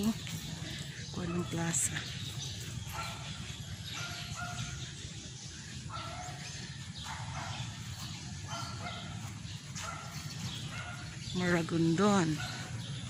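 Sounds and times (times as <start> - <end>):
dog barking: 2.8 - 5.0, 5.7 - 11.3, 12.1 - 12.8.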